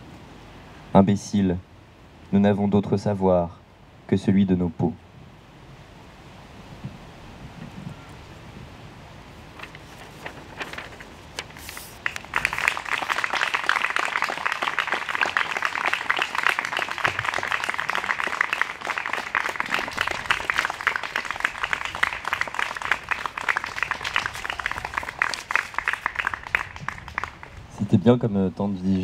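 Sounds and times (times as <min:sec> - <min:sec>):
audience applause: 0:11.9 - 0:27.9.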